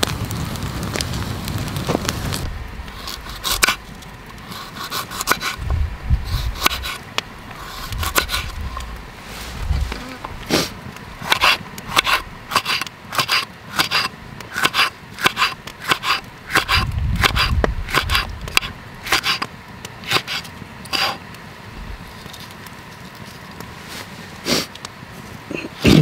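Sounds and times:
knife slicing pepper on wooden board: 0:11.2 - 0:19.5.

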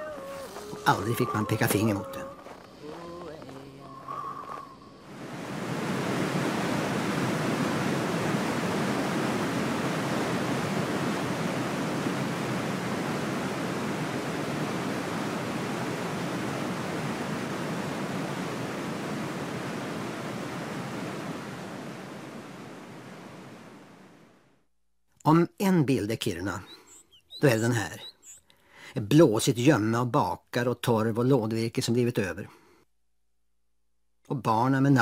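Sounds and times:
river rapids rushing: 0:05.1 - 0:23.7.

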